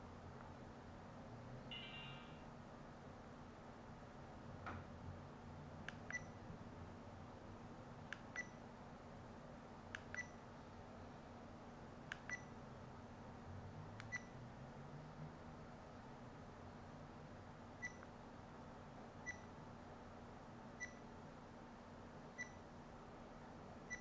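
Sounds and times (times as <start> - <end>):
short high beeps: 1.7 - 2.4.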